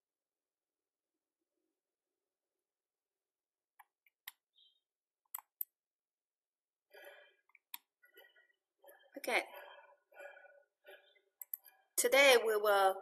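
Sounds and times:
computer mouse clicks: 5.3 - 5.8, 11.4 - 11.7.

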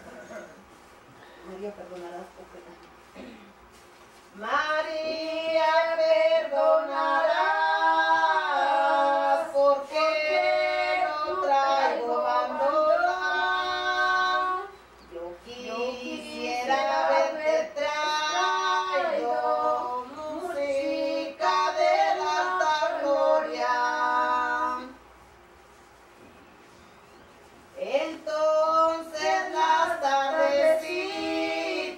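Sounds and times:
women singing unaccompanied: 4.4 - 25.0, 27.8 - 31.9.

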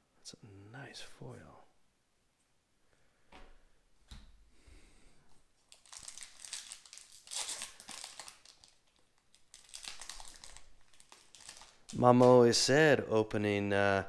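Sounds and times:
plastic foil wrapper crinkling: 5.6 - 12.4.

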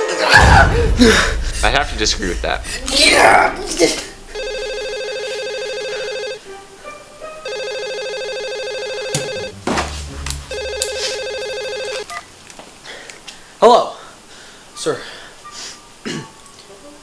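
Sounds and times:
telephone ringing: 4.4 - 6.4, 7.4 - 9.6, 10.5 - 12.2.

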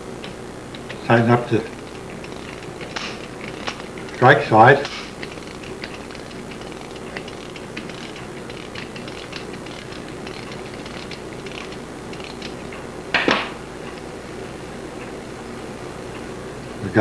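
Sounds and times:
clock ratchet clicking: 1.8 - 12.7.

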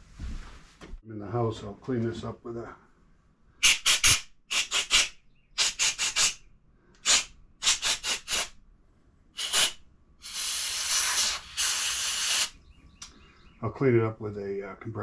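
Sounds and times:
compressed air hissing blasts: 3.6 - 8.6, 9.4 - 12.6.

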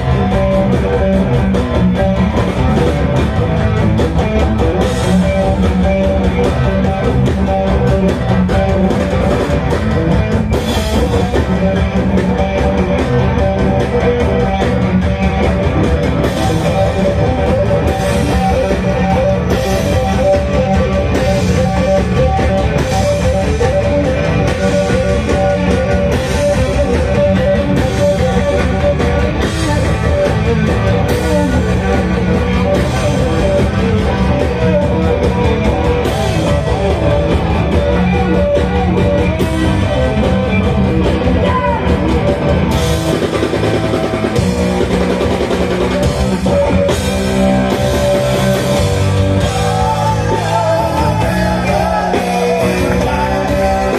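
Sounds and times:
drum kit: 0.0 - 53.9
electric guitar: 0.0 - 53.9.

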